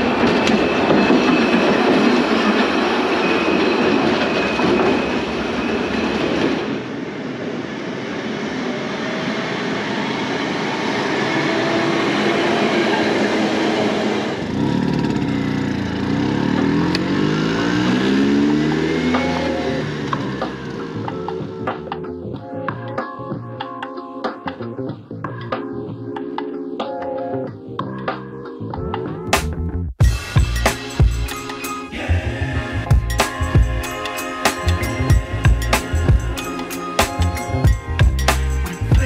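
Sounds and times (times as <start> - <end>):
tram rumbling on rails: 0.0 - 23.6, 30.1 - 39.0
scooter engine pulling away: 9.6 - 21.6.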